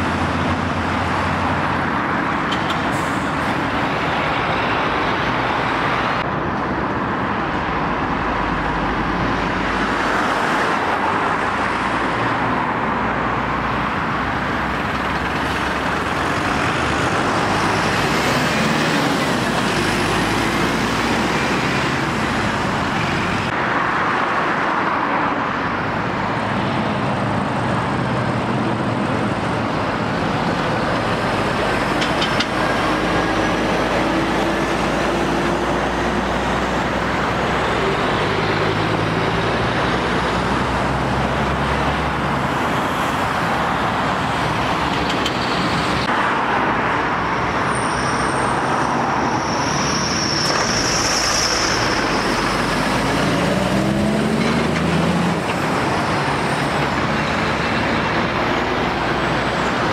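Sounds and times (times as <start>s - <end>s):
diesel lorry engines: 0.0s - 59.9s.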